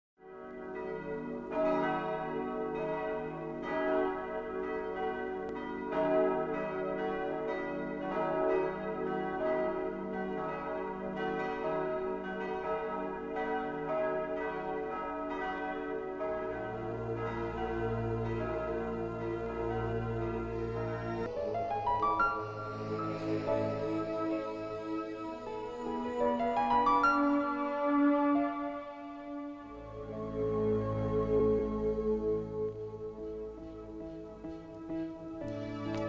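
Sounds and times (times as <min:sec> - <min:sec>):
church bells pealing: 0:00.2 - 0:31.8.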